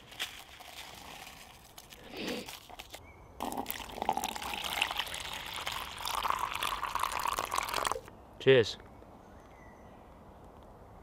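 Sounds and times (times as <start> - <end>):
hot water pouring into cup: 3.4 - 8.1.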